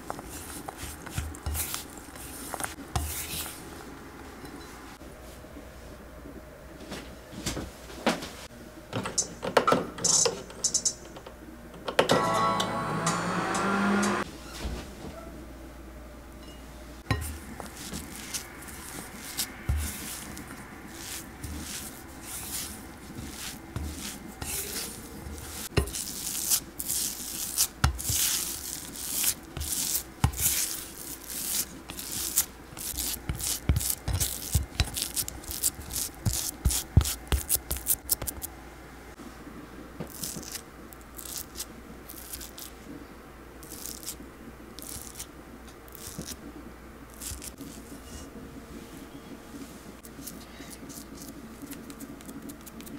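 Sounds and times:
spatula scraping glass bowl: 17.1s - 35.2s.

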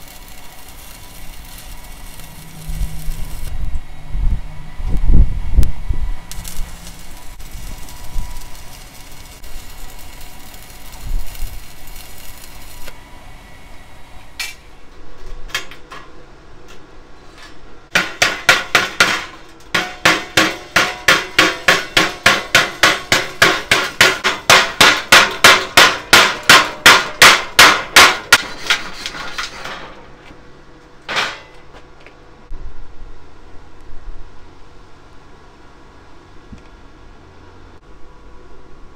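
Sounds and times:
welding arc hissing and crackling: 0.0s - 3.8s, 4.9s - 14.7s, 17.9s - 28.8s
chipping hammer striking steel: 17.9s - 28.6s.

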